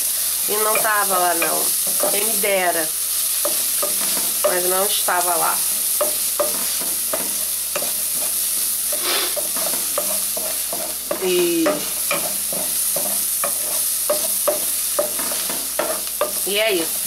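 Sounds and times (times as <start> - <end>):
onion sizzling in oil: 0.0 - 17.0
wooden spoon scraping pan: 3.4 - 16.5.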